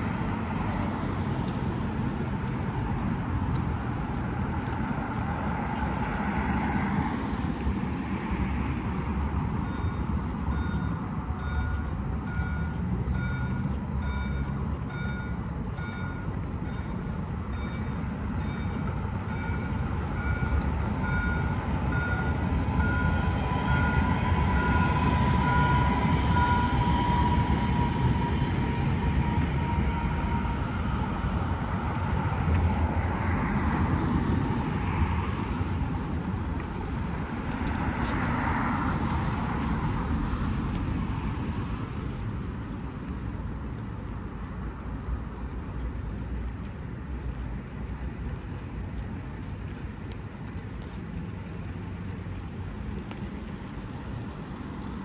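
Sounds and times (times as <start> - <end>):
rail vehicle rumbling by: 0.0 - 55.0
repeating warning beep: 9.6 - 28.8.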